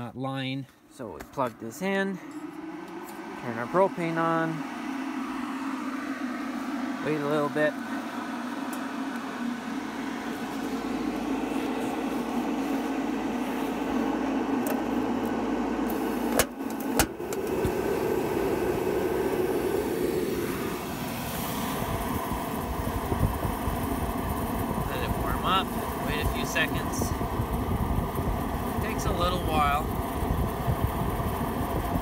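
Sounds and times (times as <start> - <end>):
heater fan running: 0.0 - 32.0
burner rushing: 1.0 - 32.0
igniter clicks: 14.6 - 17.8.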